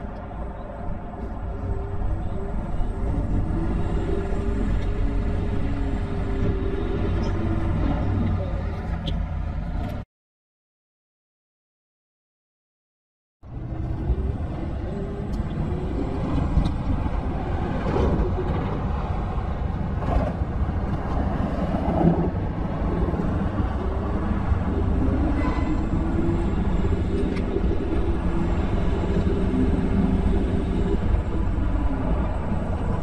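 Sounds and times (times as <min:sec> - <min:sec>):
faint humming tone: 0:00.0 - 0:10.0, 0:22.5 - 0:33.0
wind: 0:00.0 - 0:10.0, 0:13.4 - 0:33.0.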